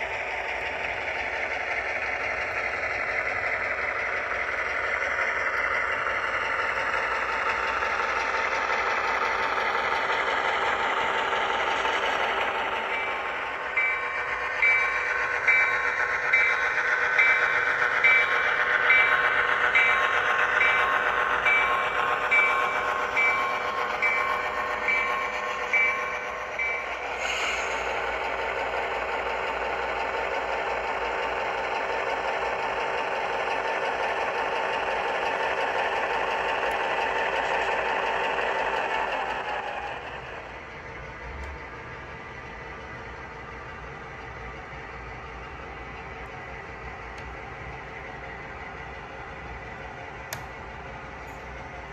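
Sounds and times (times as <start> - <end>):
diesel engine idling: 0.0 - 51.9
locomotive bell ringing: 0.5 - 40.1
short hiss of air: 27.2 - 27.8.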